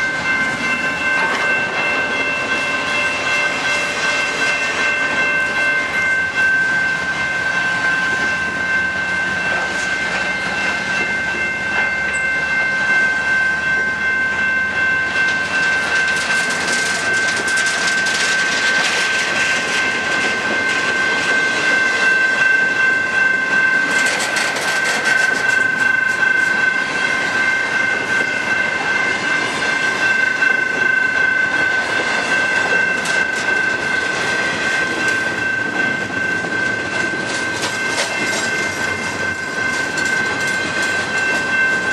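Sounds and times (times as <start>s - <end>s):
train wheels clattering over rail joints: 15.2s - 22.6s, 23.2s - 41.9s.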